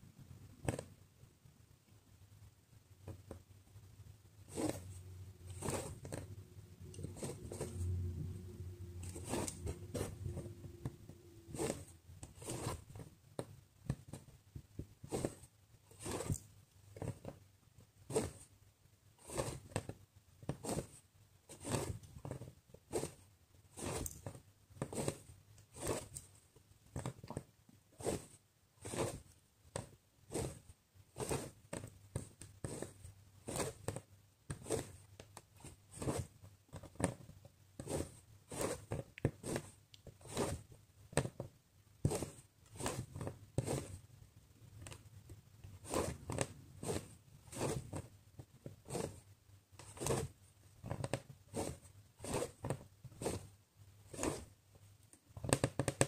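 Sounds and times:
low steady hum: 0:00.0 - 0:17.6
thread pulled through fabric: 0:04.4 - 0:14.4, 0:15.0 - 0:17.4, 0:19.2 - 0:26.4, 0:27.0 - 0:41.4, 0:42.0 - 0:44.1, 0:44.8 - 0:54.6.

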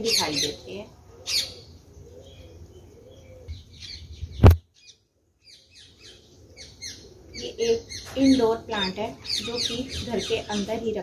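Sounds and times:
small birds chirping: 0:00.0 - 0:11.0
sharp knock: 0:04.4 - 0:04.6.

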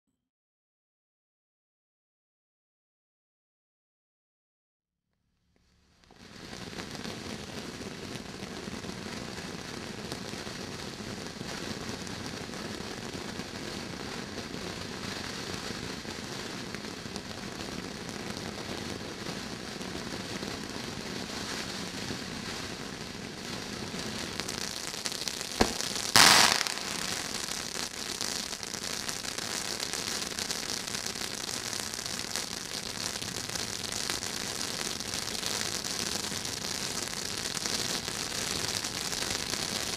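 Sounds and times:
firework fountain hissing crackle: 0:05.6 - 0:39.9
firework crack: 0:06.0 - 0:39.9
firework bang: 0:25.5 - 0:30.2.

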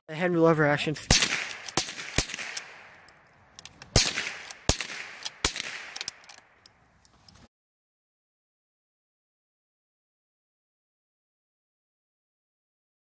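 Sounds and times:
rifle shots: 0:01.0 - 0:03.1, 0:03.8 - 0:06.7
rifle lever clicks: 0:01.3 - 0:07.4.

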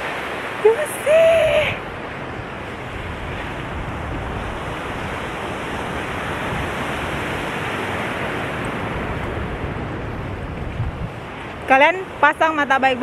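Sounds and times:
waves breaking on beach: 0:00.0 - 0:13.0
wind rumbling on microphone: 0:00.0 - 0:13.0.

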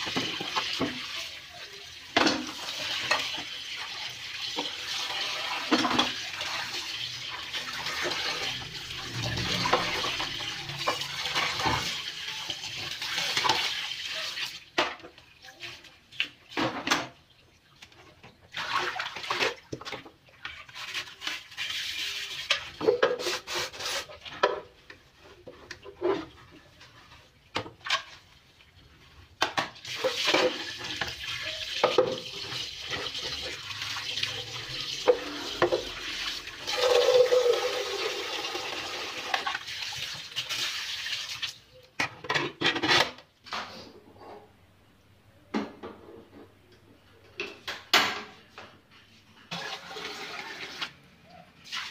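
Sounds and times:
pots and pans clattering: 0:02.1 - 0:03.5, 0:04.5 - 0:06.2, 0:22.4 - 0:23.5, 0:42.0 - 0:43.8.

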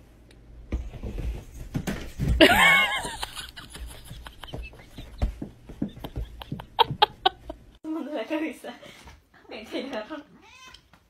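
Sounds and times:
cat thumps and patter on bed: 0:00.7 - 0:07.6
cat crying: 0:10.4 - 0:10.8.

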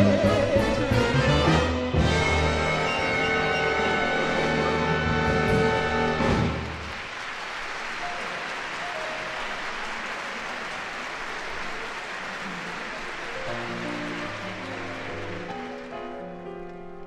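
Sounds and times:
big band playing: 0:00.0 - 0:07.0, 0:12.2 - 0:16.8
audience applauding: 0:05.2 - 0:17.0.

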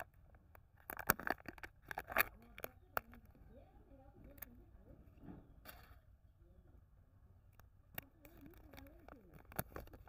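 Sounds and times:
lid peeling off plastic cup: 0:00.8 - 0:03.2
packaging crinkling: 0:00.8 - 0:03.2.

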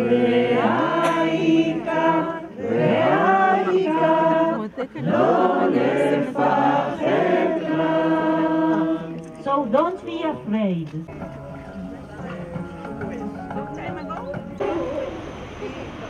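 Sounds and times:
women singing slow song: 0:00.0 - 0:09.2.

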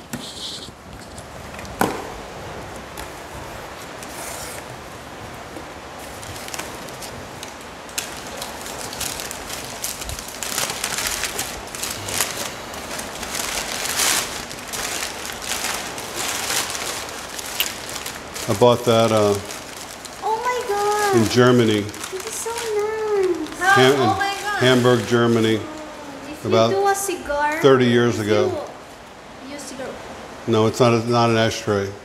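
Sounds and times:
packing paper crinkling: 0:06.0 - 0:26.6.

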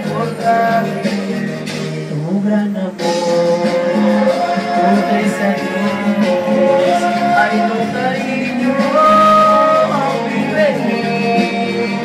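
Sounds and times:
men singing a ballad: 0:02.1 - 0:12.0.

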